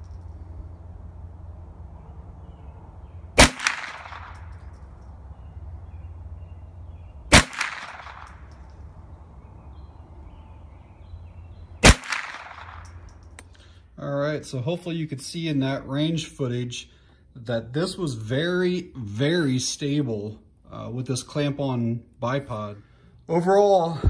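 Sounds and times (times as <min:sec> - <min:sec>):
rifle shots: 0:03.4 - 0:04.6, 0:07.3 - 0:08.6, 0:11.8 - 0:13.0
faint echo crack: 0:03.4 - 0:05.0, 0:07.3 - 0:08.9, 0:11.8 - 0:13.5.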